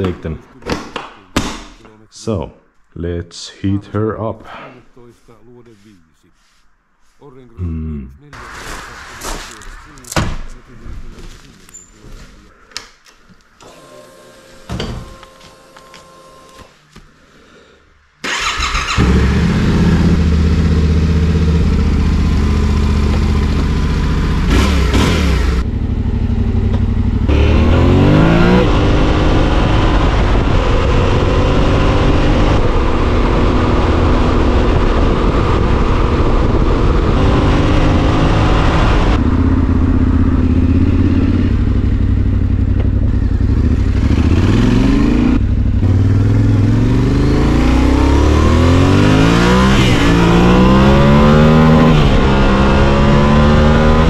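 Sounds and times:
motorcycle engine starting and idling: 18.2s - 27.5s, 39.2s - 44.6s.

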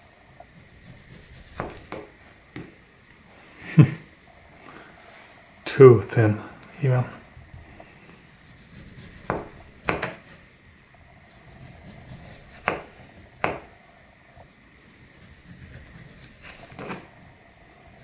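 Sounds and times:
knife knocking on cutting board: 9.3s - 10.2s, 12.6s - 13.7s.

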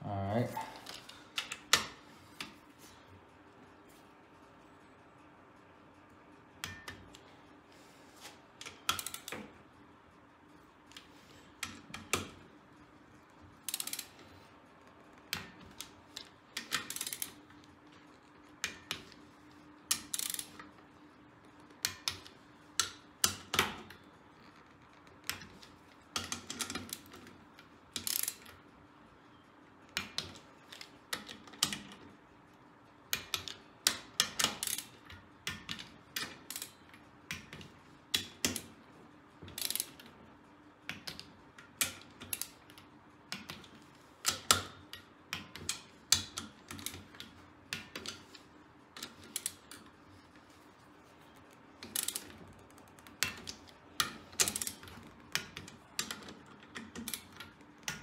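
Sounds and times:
ratchet wrench clicking: 8.6s - 9.4s, 13.6s - 14.2s, 15.7s - 17.4s, 19.9s - 20.7s, 28.0s - 28.5s, 33.2s - 35.0s, 39.6s - 40.0s, 51.8s - 52.3s.

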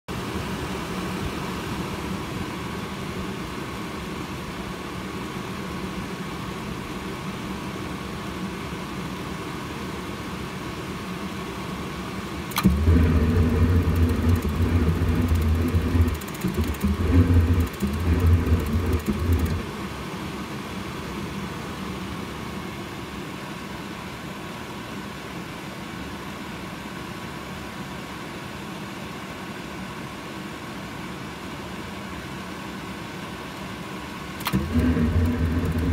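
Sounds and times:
sharp click: 12.5s - 19.6s, 34.4s - 35.9s
spark igniter ticking: 12.5s - 19.6s
burner rumbling: 12.5s - 19.7s
furnace blower humming: 12.5s - 19.8s, 34.4s - 35.9s.

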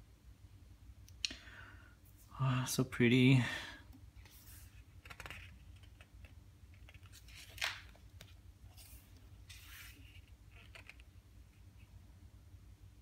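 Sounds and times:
book pages turning: 4.2s - 11.2s.

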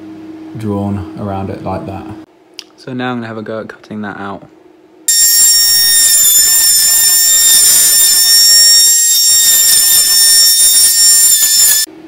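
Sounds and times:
multi-tool whining while cutting wood: 5.1s - 11.9s.

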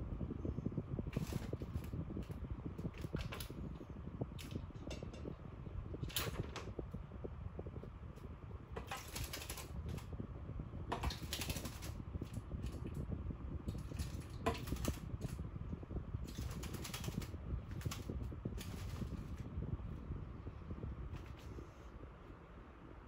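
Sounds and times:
steady low hum: 0.0s - 23.0s
bird splashing and wing-fluttering: 1.1s - 2.3s, 8.8s - 10.0s, 10.9s - 13.0s, 13.7s - 15.3s, 16.3s - 19.4s.

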